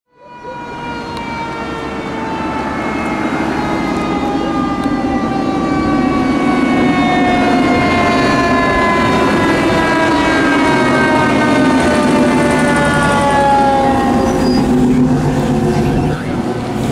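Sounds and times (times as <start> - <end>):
fire engine siren wailing: 0.1 - 16.9.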